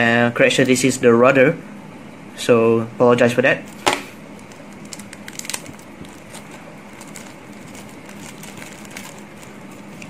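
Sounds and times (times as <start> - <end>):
steady hum: 0.0 - 10.0
plastic bag crinkling: 4.3 - 10.0.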